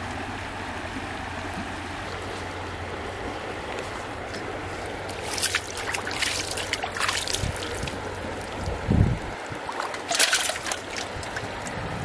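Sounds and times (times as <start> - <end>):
water splashing: 0.0 - 12.0.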